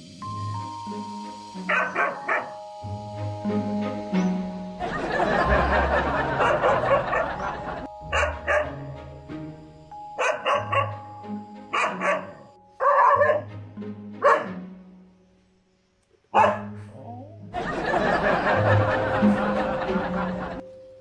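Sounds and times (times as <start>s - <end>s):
background music: 0.0s - 21.0s
dog barking sharply: 10.2s - 11.0s, 11.8s - 13.5s, 14.2s - 14.6s, 16.4s - 16.7s.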